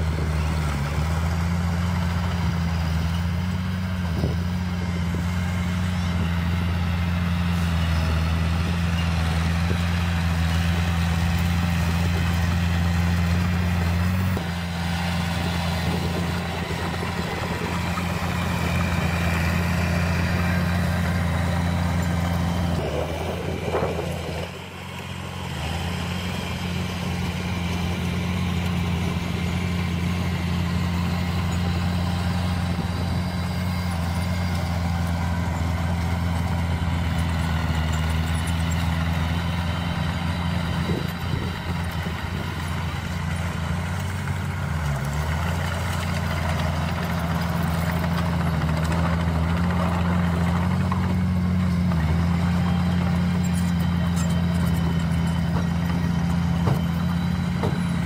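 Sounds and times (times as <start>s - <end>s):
bulldozer engine running: 0.0s - 58.0s
dump truck diesel engine: 0.0s - 58.0s.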